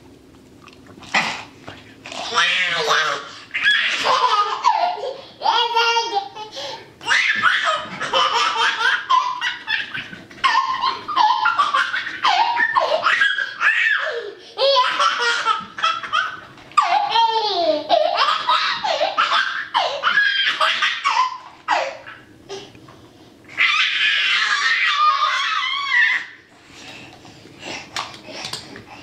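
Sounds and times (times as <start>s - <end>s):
toddler laughing: 2.4s - 22.3s.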